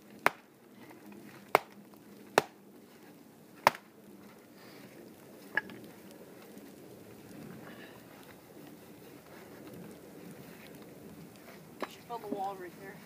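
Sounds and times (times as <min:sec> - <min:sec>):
blade chopping wood: 0:00.2 - 0:00.5, 0:01.5 - 0:02.6, 0:03.6 - 0:03.9.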